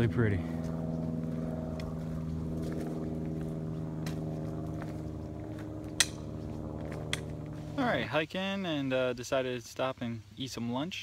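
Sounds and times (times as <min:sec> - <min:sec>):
low engine drone: 0:00.0 - 0:08.9.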